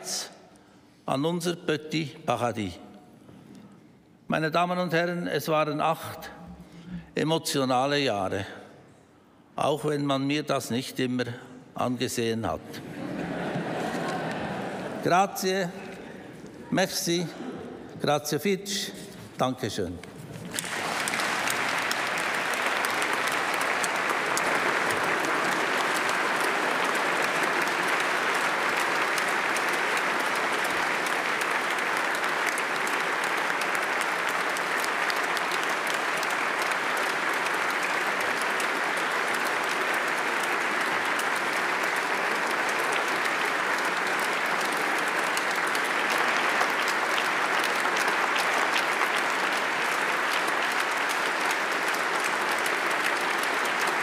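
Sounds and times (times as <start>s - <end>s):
audience applauding: 12.8s - 15.1s, 20.0s - 54.0s.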